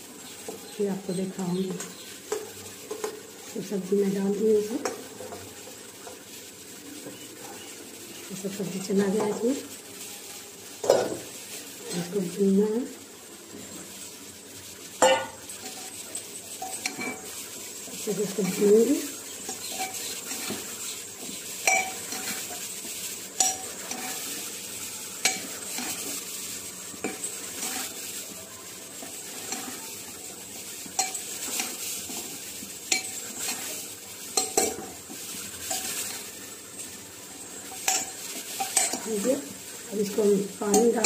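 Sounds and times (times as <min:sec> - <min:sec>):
vegetables sizzling: 0:00.0 - 0:41.0
spoon scraping pot: 0:16.5 - 0:17.4, 0:19.3 - 0:24.4, 0:25.2 - 0:26.3, 0:27.0 - 0:28.0, 0:29.0 - 0:29.8, 0:32.9 - 0:36.2.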